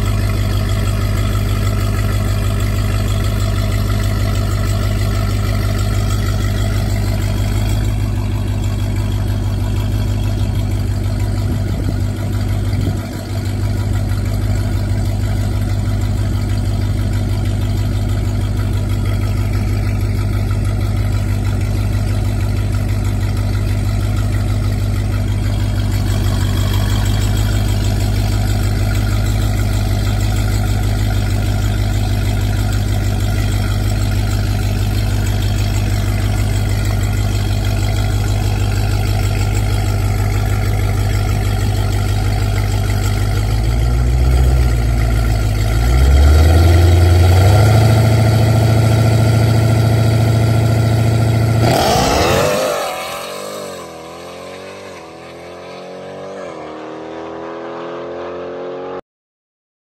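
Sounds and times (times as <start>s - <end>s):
loud suv engine idling and revving: 0.0s - 59.0s.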